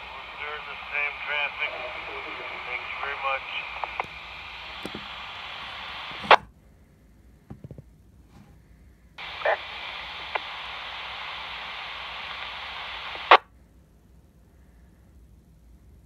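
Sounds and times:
radio static hiss: 0.0s - 6.5s, 9.2s - 13.5s.

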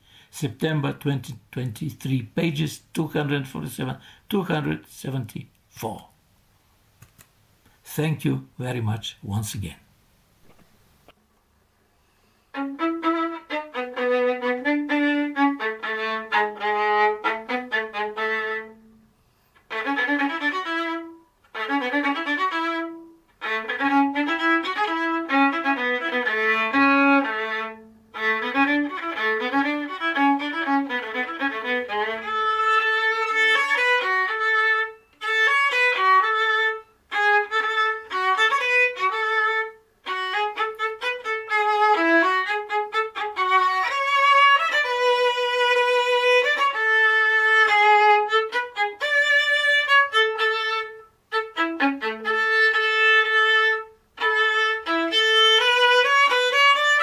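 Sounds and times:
solo violin melody: 12.5s - 57.0s.

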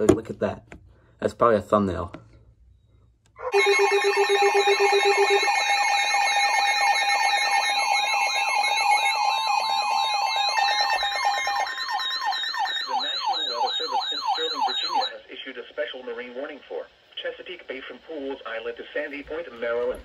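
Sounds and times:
steady alarm tones: 2.9s - 15.2s
alert radio beeping: 3.4s - 15.2s.

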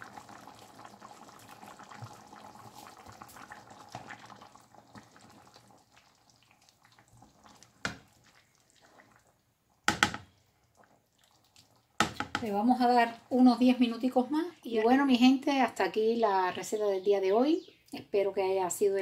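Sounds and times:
stew bubbles popping: 0.0s - 12.6s
spoon knock: 9.9s - 10.3s.

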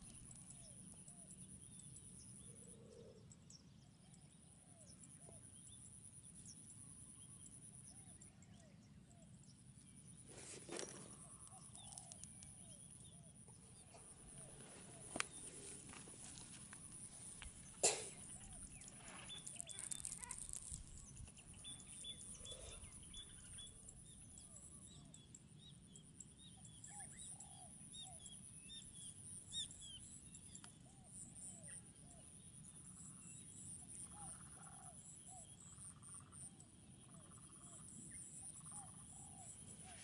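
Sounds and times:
low steady background noise: 0.0s - 40.0s
small birds chirping and whistling: 17.4s - 31.8s.

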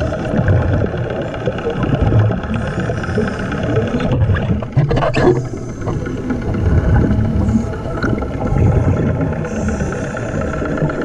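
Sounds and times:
diver's exhaled air bubbling: 0.0s - 11.0s
underwater engine drone: 0.0s - 11.0s.

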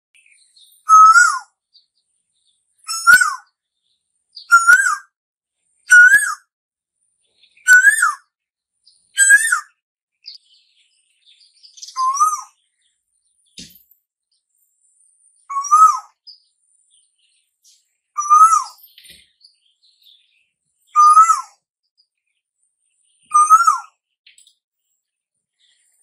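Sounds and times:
koel whistled calls: 0.8s - 1.5s, 2.8s - 3.5s, 4.4s - 5.1s, 5.9s - 6.5s, 7.6s - 8.3s, 9.1s - 9.8s, 11.8s - 12.6s, 15.5s - 16.2s, 18.2s - 18.8s, 20.9s - 21.6s, 23.3s - 24.0s.

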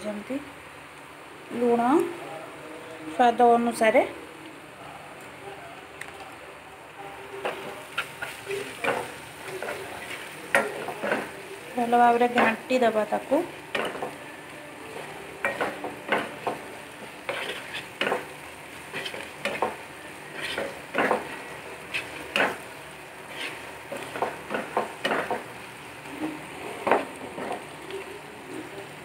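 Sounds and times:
food sizzling in oil: 6.9s - 29.0s
spatula scraping a pan: 14.9s - 25.5s.

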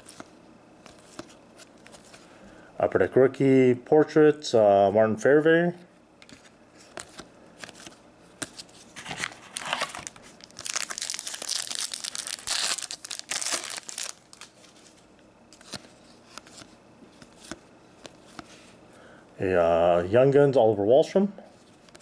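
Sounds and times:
foil wrapper crinkling and tearing: 9.4s - 14.7s.

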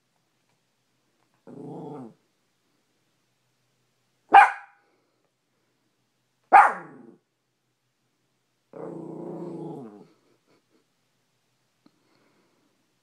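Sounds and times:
dog growling: 1.4s - 2.2s, 8.7s - 10.2s
dog barking: 4.3s - 4.8s, 6.5s - 7.1s.

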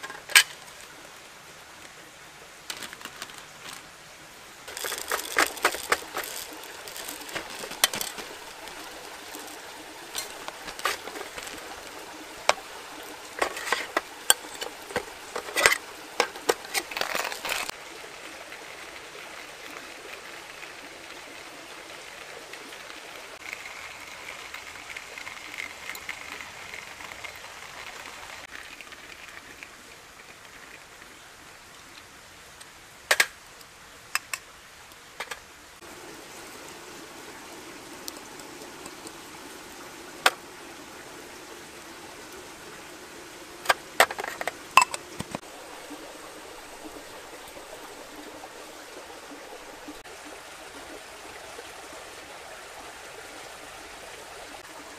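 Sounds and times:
plastic bag crinkling: 4.7s - 12.0s, 16.4s - 17.7s
coffee beans rattling: 4.7s - 12.7s, 13.4s - 17.7s, 23.4s - 30.8s.

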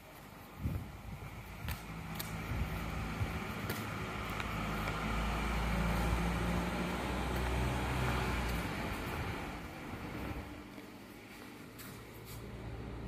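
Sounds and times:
vehicle engine rumble: 0.0s - 13.0s.

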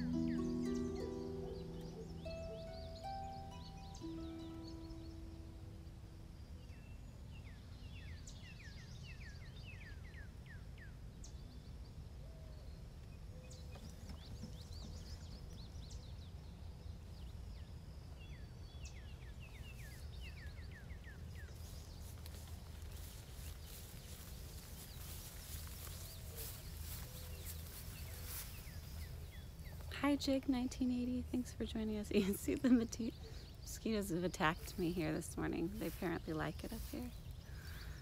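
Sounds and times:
songbirds singing: 0.0s - 38.0s
rustling of person standing up: 21.4s - 30.0s.

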